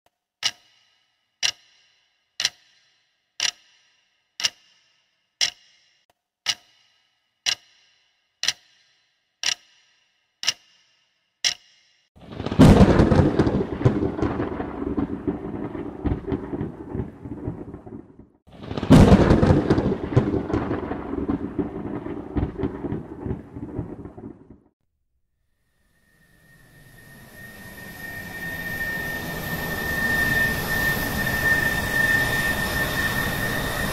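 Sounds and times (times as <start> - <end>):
clock ticking: 0.4 - 12.0
thunder claps and rumble: 12.2 - 24.7.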